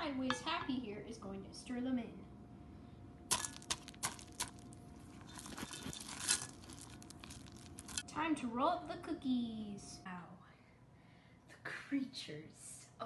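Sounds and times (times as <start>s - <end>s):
faint steady hum: 0.0s - 13.0s
spatula scraping cookie dough: 3.8s - 8.0s.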